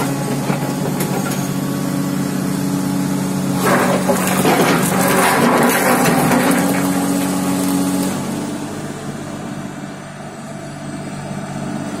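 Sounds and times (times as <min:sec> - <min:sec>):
excavator engine hum: 0:00.0 - 0:12.0
loose rock rattling in bucket: 0:03.6 - 0:07.9.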